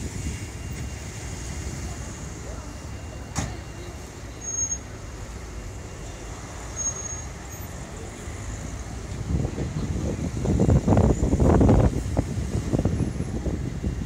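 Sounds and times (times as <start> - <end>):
traffic rumble: 0.0 - 14.0
brief high squeaks: 4.4 - 5.0, 6.7 - 7.7.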